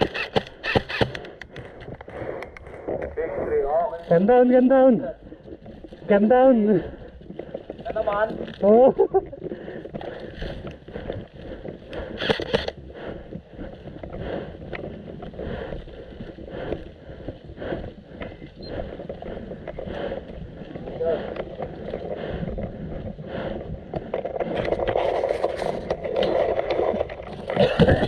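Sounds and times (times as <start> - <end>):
wind buffeting microphone: 1.3 - 28.0.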